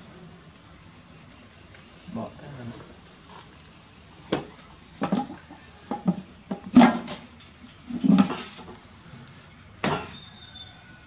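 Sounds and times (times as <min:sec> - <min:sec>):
sharp knocks and clatters: 0:04.3 - 0:07.4.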